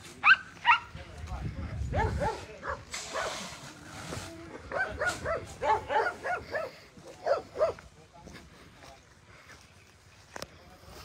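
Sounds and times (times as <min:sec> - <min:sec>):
dogs barking: 0:00.2 - 0:00.9, 0:01.9 - 0:03.4, 0:04.7 - 0:07.8.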